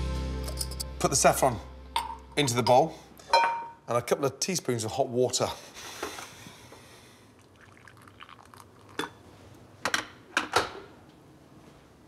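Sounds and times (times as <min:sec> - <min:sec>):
hot water pouring into bowl: 0:07.3 - 0:09.2.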